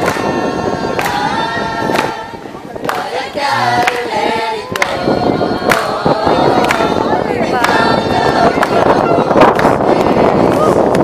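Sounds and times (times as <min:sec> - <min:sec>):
choir singing a cappella: 0:00.0 - 0:10.9.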